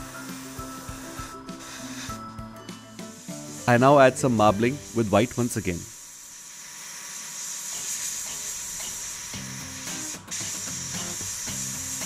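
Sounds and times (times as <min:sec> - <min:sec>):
music with a steady beat: 0:00.0 - 0:03.7, 0:09.4 - 0:12.0
airbrush hissing: 0:00.0 - 0:12.0.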